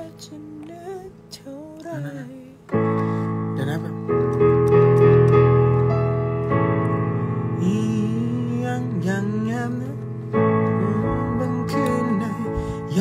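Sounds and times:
electric piano chords: 0.0s - 13.0s.

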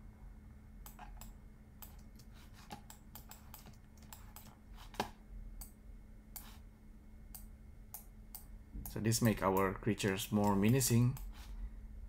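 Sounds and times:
faint steady hum: 0.0s - 12.0s
keyboard and mouse clicks: 0.8s - 5.8s.

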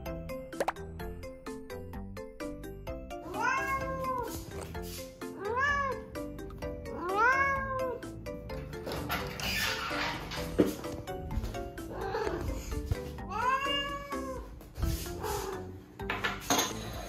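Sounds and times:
light background music: 0.0s - 17.0s
cat meowing: 3.2s - 4.3s, 5.4s - 6.1s, 7.0s - 8.0s, 11.9s - 12.5s, 13.3s - 14.5s.

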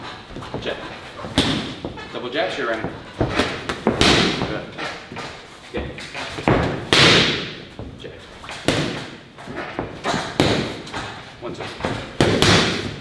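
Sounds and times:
boxing gloves hitting mitts: 0.0s - 13.0s.

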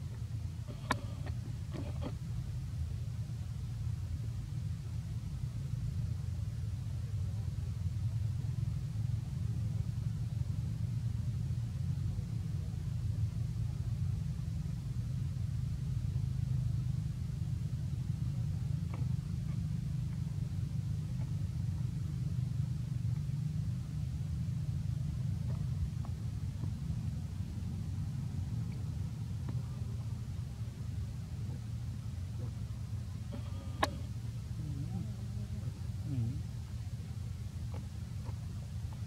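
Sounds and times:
steady low rumble: 0.0s - 39.0s
faint click: 0.7s - 2.2s.

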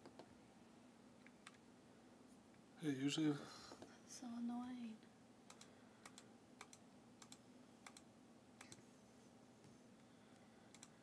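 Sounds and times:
faint steady hum: 0.0s - 11.0s
computer mouse clicks: 5.5s - 8.9s, 10.7s - 11.0s.

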